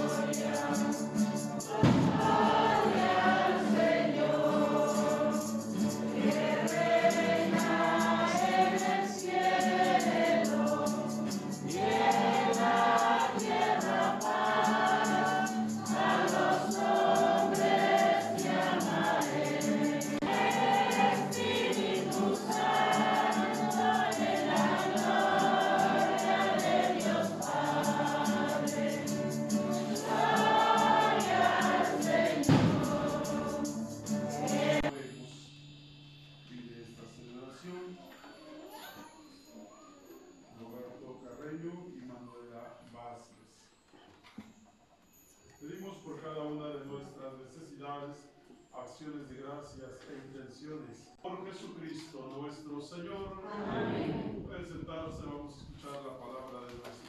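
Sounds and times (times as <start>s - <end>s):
choir singing a hymn: 0.0s - 35.0s, 53.2s - 54.5s.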